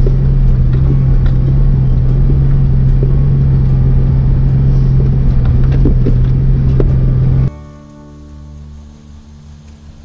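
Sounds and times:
vehicle engine droning: 0.0 - 10.0.

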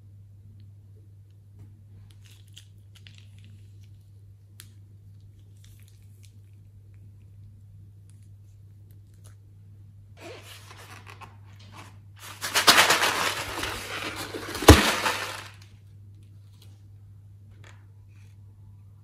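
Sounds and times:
low steady hum: 0.0 - 19.0
plastic bag and balloon rustling: 10.2 - 15.6.

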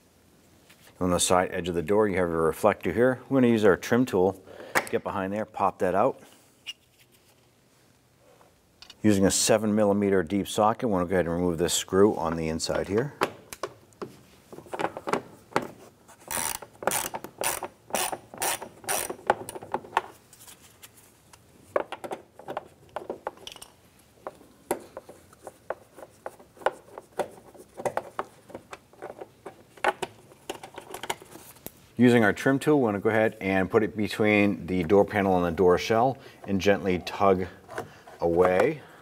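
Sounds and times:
hand ratchet clicking: 16.3 - 19.3.

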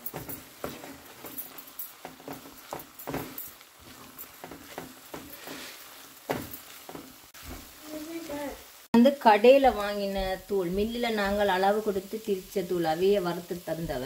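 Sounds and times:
wooden spatula scraping frying pan: 0.0 - 8.4
light sizzle: 0.0 - 14.0.

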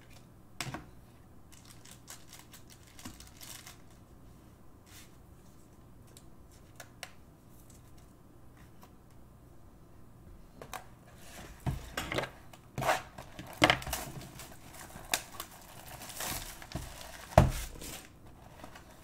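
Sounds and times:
plastic wrap crinkling: 1.5 - 4.0, 13.3 - 19.0.

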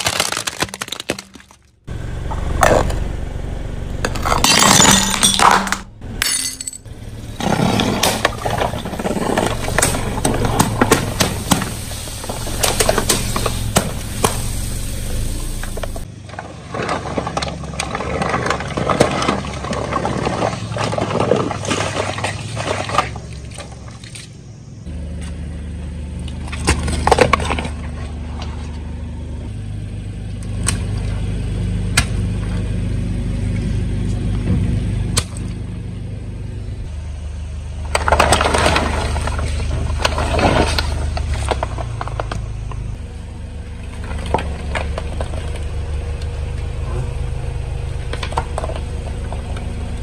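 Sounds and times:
tyre crushing objects: 0.0 - 1.8, 7.3 - 14.5
car engine hum: 0.0 - 50.0.

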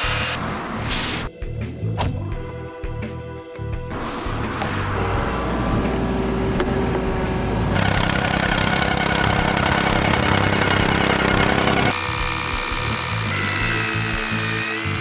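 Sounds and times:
plate compactor running: 6.8 - 15.0
tamping rammer pounding soil: 7.7 - 15.0.

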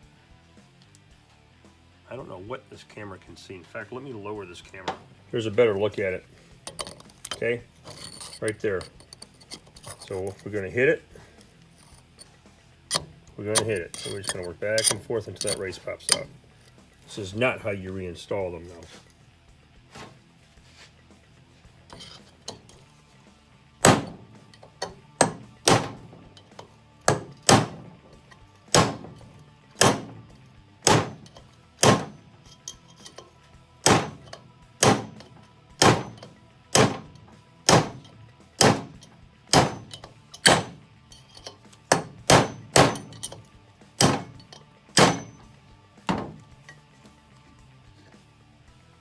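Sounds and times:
hammer striking steel punch: 23.8 - 26.2, 27.1 - 28.0, 28.7 - 32.3, 33.8 - 40.8, 41.9 - 43.4, 44.0 - 45.5, 46.1 - 46.4.

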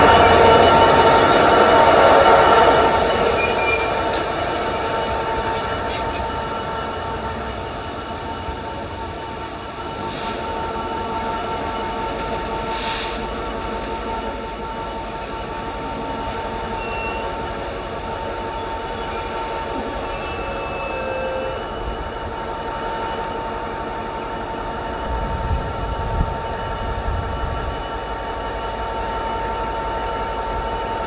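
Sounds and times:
high wheel squeal: 0.0 - 21.6
freight train wagons rumbling: 0.0 - 31.0.

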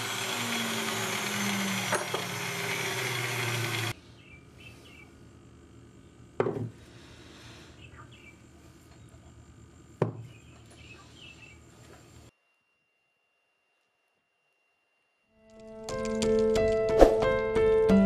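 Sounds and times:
power tool cutting steel: 0.0 - 4.0
faint bird chirps: 7.7 - 9.4.

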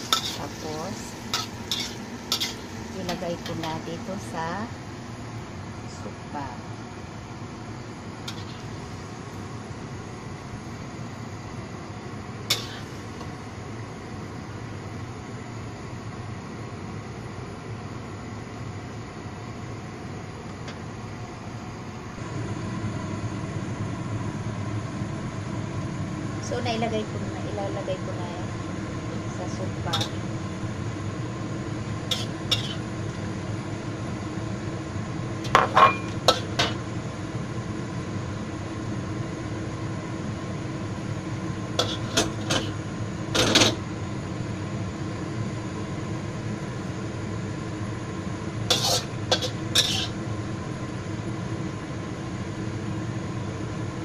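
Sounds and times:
noisy hiss: 0.0 - 15.9
low machine hum: 0.0 - 54.0
short scrape at a bowl: 48.7 - 50.2.

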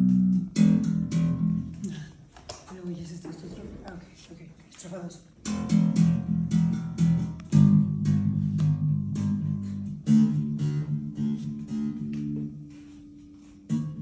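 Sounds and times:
strummed guitar: 0.0 - 2.1, 5.4 - 14.0
electric bass notes: 0.0 - 2.3, 5.4 - 14.0.

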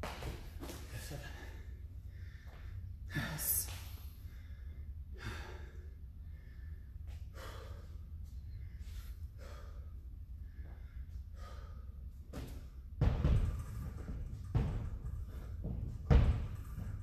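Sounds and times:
man gasping breaths: 1.0 - 12.2
heavy thump against wall: 12.4 - 17.0.

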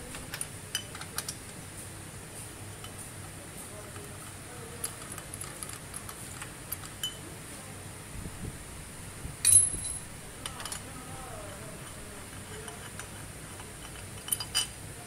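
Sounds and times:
loud metal clink: 9.4 - 10.1.

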